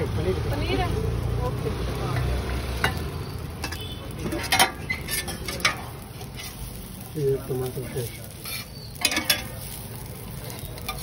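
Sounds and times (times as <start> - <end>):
food sizzling on griddle: 0.0 - 11.0
metal utensil clinking on steel: 3.6 - 6.6, 8.4 - 9.7, 10.5 - 11.0.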